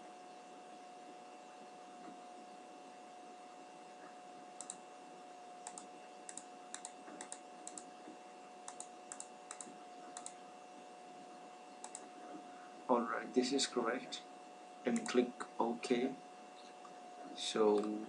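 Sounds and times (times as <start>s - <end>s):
faint steady hum: 0.0s - 18.0s
computer mouse clicks: 4.6s - 4.8s, 5.6s - 7.9s, 8.6s - 10.4s, 11.8s - 12.1s, 14.9s - 15.2s, 17.7s - 18.0s.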